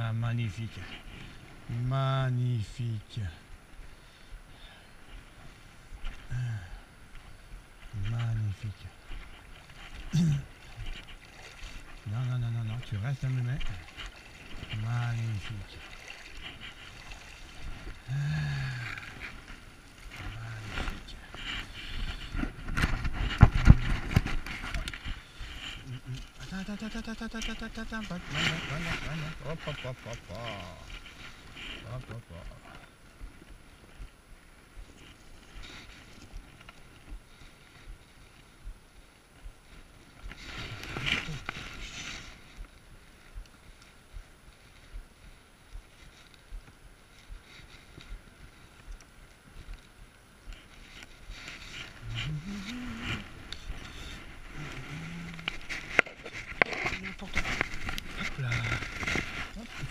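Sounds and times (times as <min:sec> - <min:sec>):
small stream rushing: 0:00.0 - 0:59.9
clicks and rustles in grass: 0:05.0 - 0:59.9
man murmuring: 0:10.1 - 0:10.5, 0:18.0 - 0:19.0, 0:25.8 - 0:30.9, 0:52.0 - 0:55.6.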